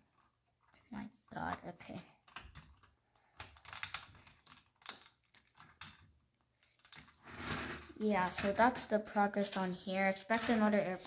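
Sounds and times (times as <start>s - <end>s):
plastic pieces clicking: 1.5s - 7.7s.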